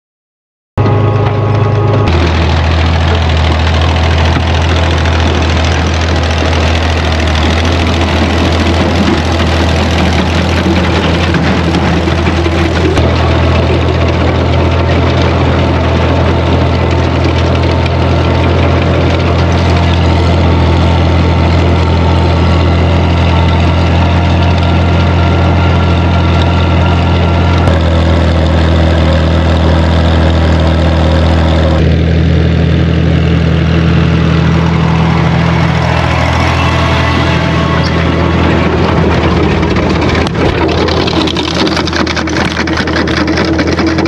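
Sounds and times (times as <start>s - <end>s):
tractor engine running: 0.8s - 44.0s.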